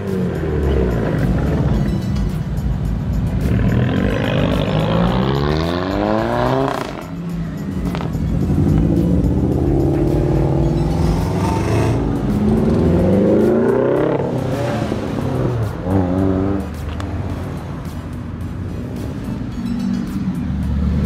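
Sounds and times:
car engine revving: 3.3 - 19.4.

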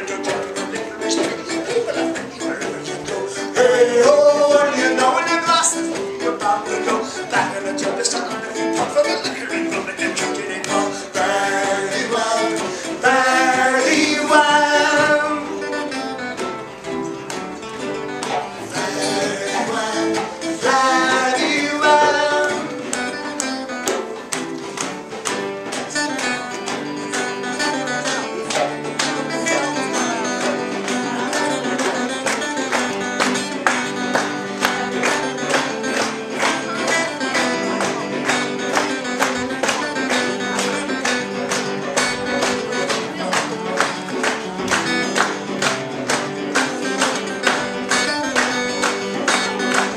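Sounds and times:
man singing into a microphone: 0.0 - 15.6, 18.8 - 22.8
strummed acoustic guitars: 0.0 - 49.9.

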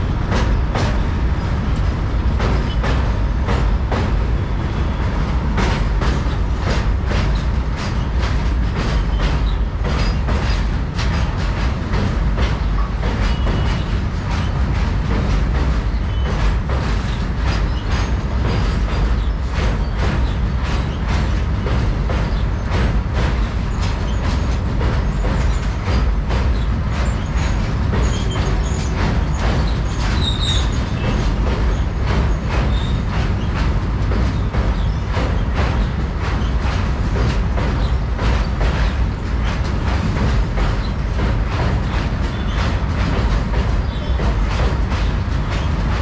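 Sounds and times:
freight train rumbling: 0.0 - 46.0
wheels clacking over rail joints: 0.0 - 46.0.

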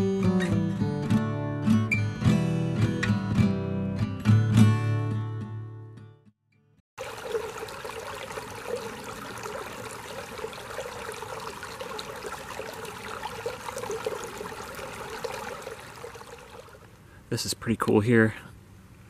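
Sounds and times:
creek gurgling over stones: 7.0 - 16.9.

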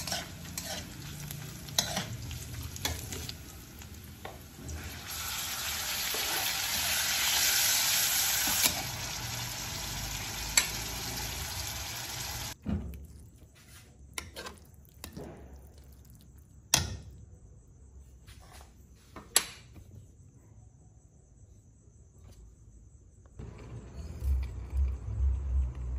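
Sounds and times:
tomatoes sizzling in hot oil: 0.0 - 12.6.

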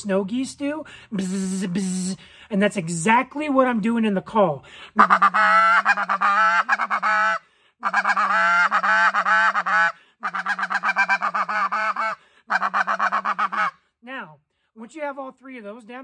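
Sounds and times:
yelping goose call notes: 5.0 - 13.8.

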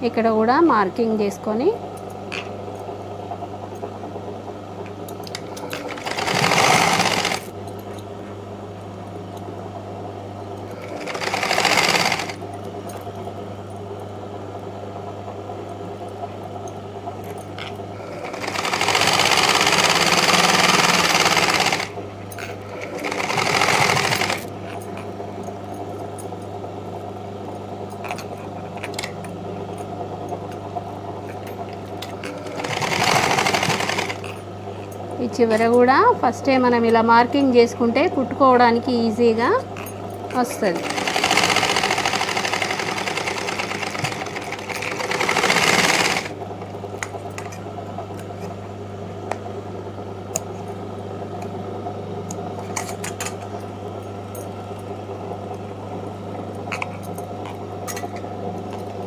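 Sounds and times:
sewing machine stitching: 5.4 - 7.5, 10.7 - 12.4, 18.0 - 22.0, 22.7 - 24.6, 32.2 - 34.4, 40.3 - 46.4.

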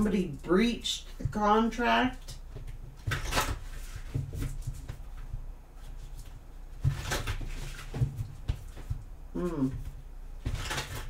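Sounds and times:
cards being shuffled: 5.8 - 9.0.

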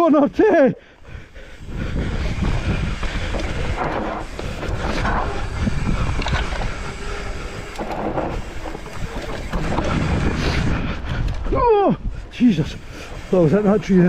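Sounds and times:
bike tyres rolling on dirt: 0.0 - 14.0
wind rumbling on microphone: 1.0 - 14.0
bike rattling and knocking: 1.2 - 11.5.

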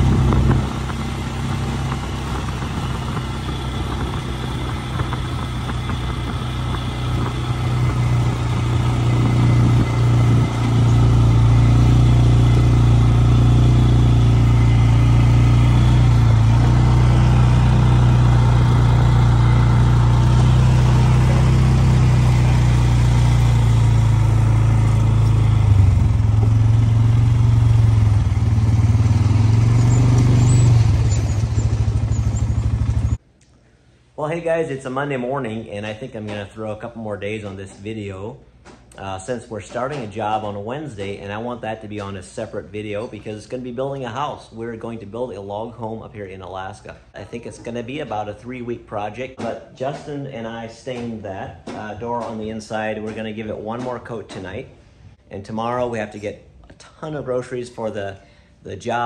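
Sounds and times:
quad bike engine running: 0.0 - 33.2.

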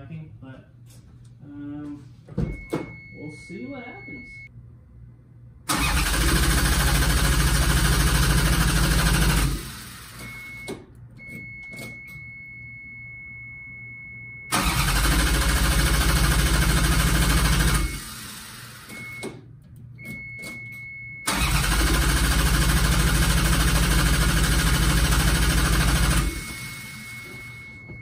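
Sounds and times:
steady high beep: 2.4 - 4.5, 11.3 - 14.5
engine cranking on starter: 5.7 - 10.2, 14.5 - 18.7, 21.3 - 26.5.

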